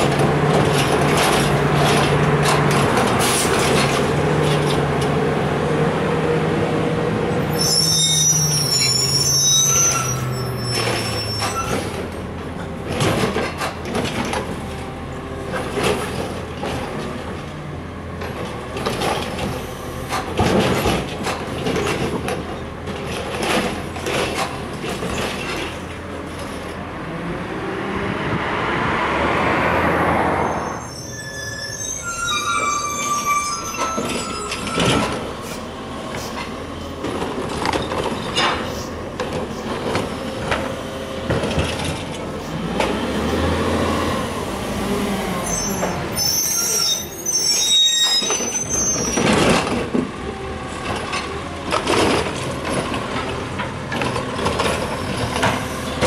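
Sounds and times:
garbage truck engine: 0:00.0 - 0:28.0, 0:31.5 - 0:46.4, 0:47.1 - 0:56.0
brakes squealing: 0:07.4 - 0:12.2, 0:30.3 - 0:36.9, 0:45.1 - 0:49.9.

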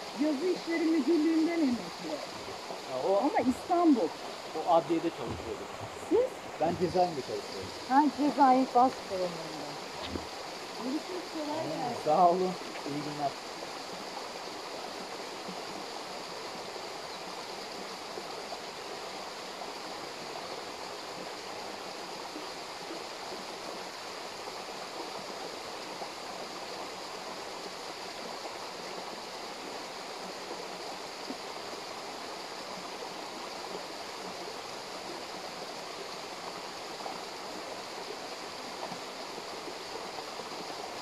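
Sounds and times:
stream water rushing: 0:00.0 - 0:41.0.

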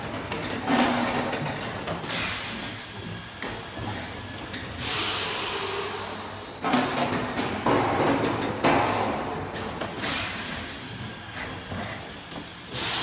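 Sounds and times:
pneumatic machine parts clacking: 0:00.0 - 0:13.0
loud hiss of air: 0:04.7 - 0:06.5, 0:10.0 - 0:13.0
sharp air blasts: 0:04.8 - 0:06.4, 0:12.6 - 0:13.0.

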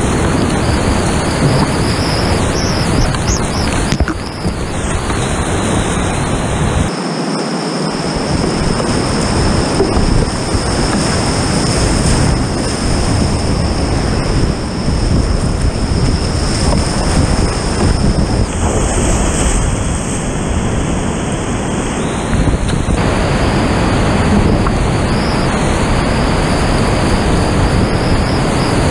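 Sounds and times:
creek whitewater rushing: 0:00.0 - 0:28.9.

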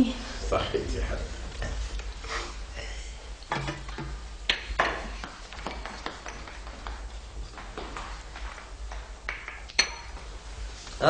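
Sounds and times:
low steady hum: 0:00.0 - 0:11.0
light footsteps: 0:05.0 - 0:11.0.

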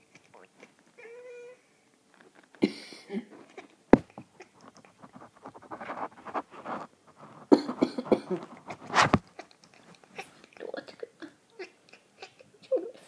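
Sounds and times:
person coughing: 0:02.6 - 0:03.4, 0:07.5 - 0:08.4.

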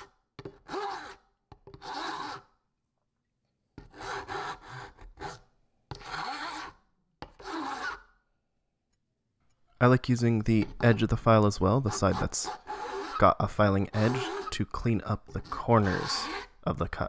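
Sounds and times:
metal file rasping on plywood: 0:00.0 - 0:02.5, 0:03.8 - 0:08.1, 0:10.5 - 0:16.7.

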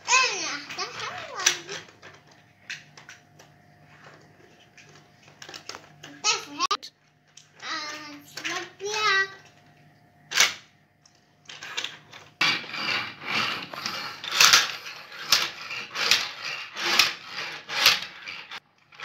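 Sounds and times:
toy cars scraping on wooden table: 0:11.6 - 0:19.0.

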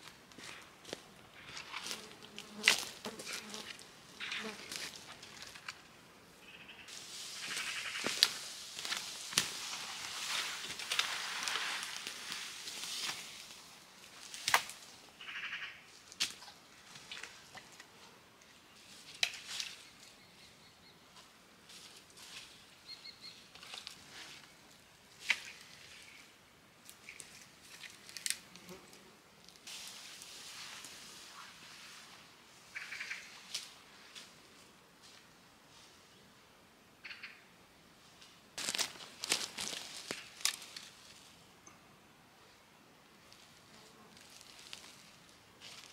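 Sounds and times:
twigs crackling: 0:00.0 - 0:05.9, 0:06.9 - 0:17.9, 0:23.5 - 0:26.2, 0:26.8 - 0:28.6, 0:38.6 - 0:41.3, 0:43.3 - 0:45.9
pine bough rustling: 0:00.0 - 0:06.0, 0:06.9 - 0:15.0, 0:21.1 - 0:36.0, 0:38.0 - 0:41.4, 0:43.2 - 0:45.9
twigs snapping: 0:14.3 - 0:14.8, 0:27.0 - 0:28.6, 0:38.6 - 0:40.9
sharp crack: 0:14.4 - 0:14.8.

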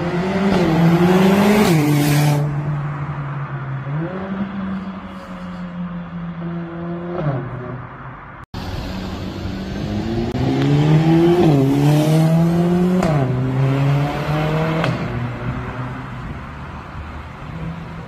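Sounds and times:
car engine accelerating with upshifts: 0:00.0 - 0:02.8, 0:08.9 - 0:16.0.

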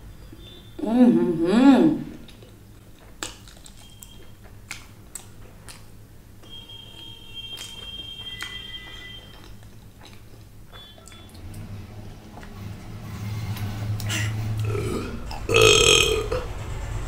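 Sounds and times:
loud burp: 0:14.6 - 0:16.5.

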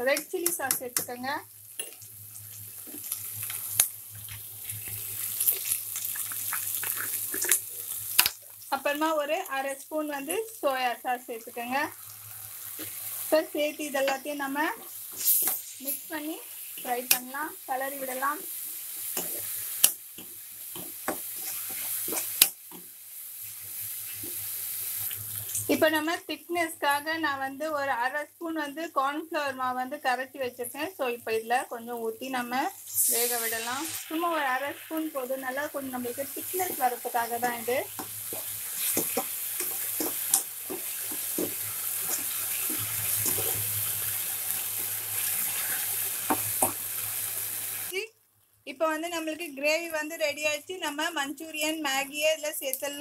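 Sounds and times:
vegetables sizzling in oil: 0:00.0 - 0:53.0
spatula scraping pan: 0:20.8 - 0:22.4, 0:38.0 - 0:43.7
spatula knocking on pan: 0:38.0 - 0:42.8.

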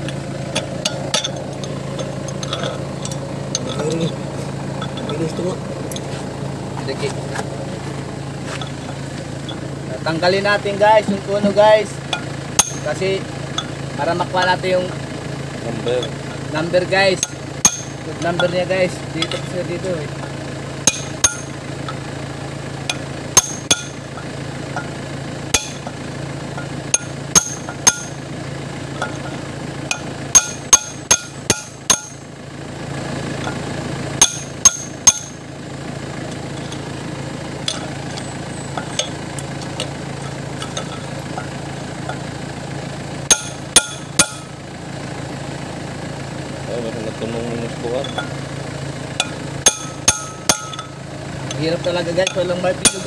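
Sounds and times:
steady low hum: 0:00.0 - 0:53.0
steel bar striking metal punch: 0:12.1 - 0:12.9, 0:17.2 - 0:18.5, 0:20.8 - 0:21.6, 0:22.9 - 0:24.0, 0:25.5 - 0:25.9, 0:26.9 - 0:28.2, 0:29.9 - 0:32.2, 0:34.2 - 0:35.4, 0:43.3 - 0:44.5, 0:49.2 - 0:50.9, 0:52.2 - 0:53.0.

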